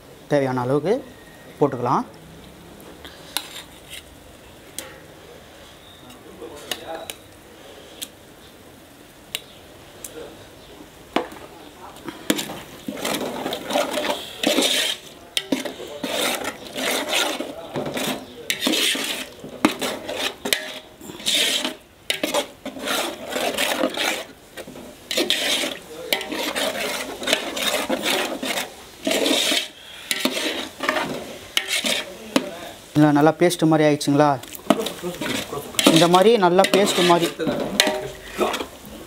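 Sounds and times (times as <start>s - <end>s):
metal spoon scraping metal pot: 3.4s - 4.1s, 12.2s - 32.6s, 34.5s - 38.8s
spoon clinking against pot: 34.7s - 38.7s.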